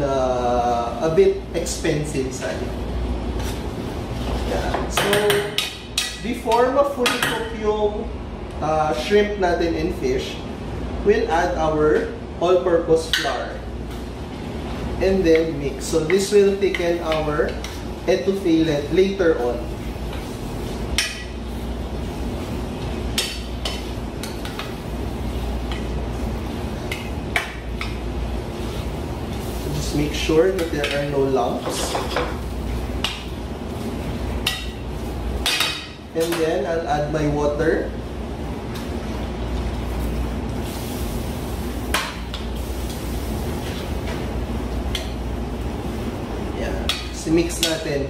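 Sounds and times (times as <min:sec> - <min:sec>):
steady low hum: 0:00.0 - 0:48.0
food sizzling: 0:15.8 - 0:35.8, 0:38.0 - 0:48.0.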